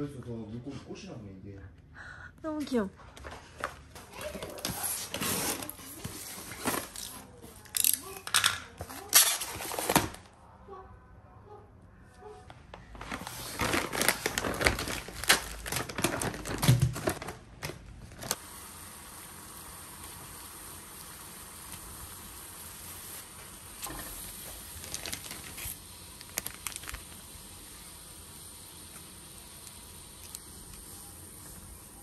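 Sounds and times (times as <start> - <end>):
plastic bag crinkling: 12.9 - 18.4, 23.8 - 27.4
water boiling in a pot: 18.2 - 32.0.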